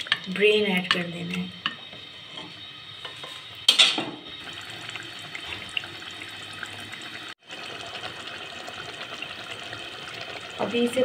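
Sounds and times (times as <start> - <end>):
gravy crackling and bubbling: 4.4 - 11.0.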